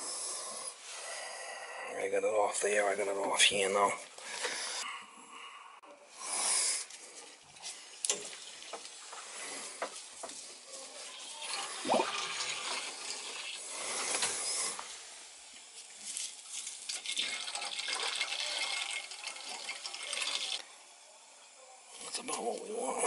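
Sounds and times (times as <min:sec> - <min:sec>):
liquid rushing through a hose: 0:16.8 - 0:20.6.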